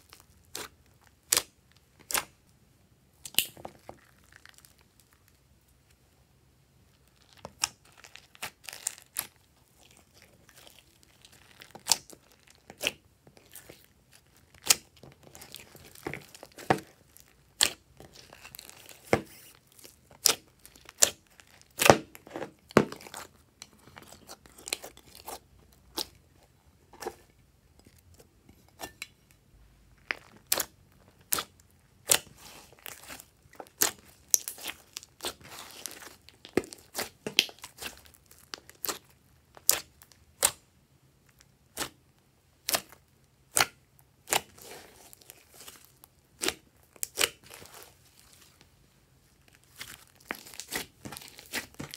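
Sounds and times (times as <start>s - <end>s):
hands squeezing sticky slime: 3.2s - 5.4s, 6.9s - 26.2s, 30.0s - 40.7s, 42.6s - 48.7s, 49.4s - 51.9s.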